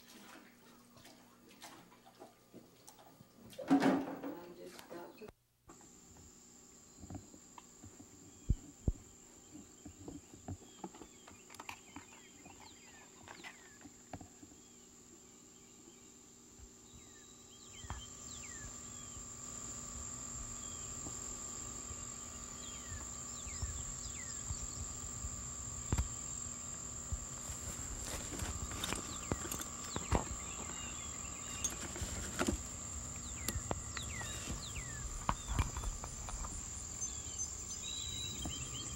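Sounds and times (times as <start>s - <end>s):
insects shrilling: 17.0s - 38.9s.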